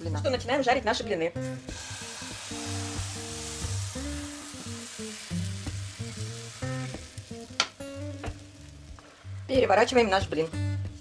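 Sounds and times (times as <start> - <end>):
background music: 0.0 - 11.0
batter sizzling in a frying pan: 1.5 - 10.4.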